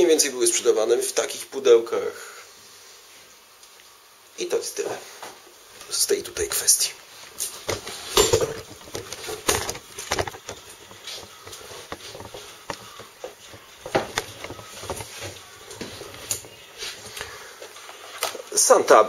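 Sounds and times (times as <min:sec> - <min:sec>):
camera handling knocks and rustles: 0:07.6 - 0:16.6.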